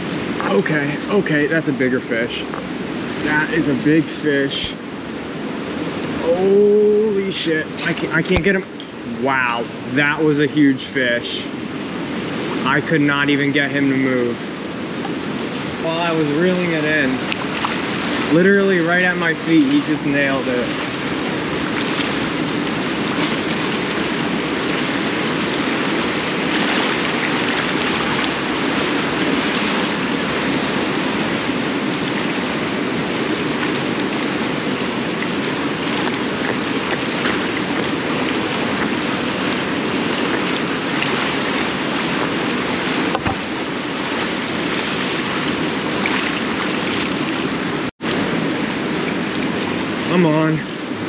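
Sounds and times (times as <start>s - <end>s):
water sloshing around pilings: 14.7s - 51.0s.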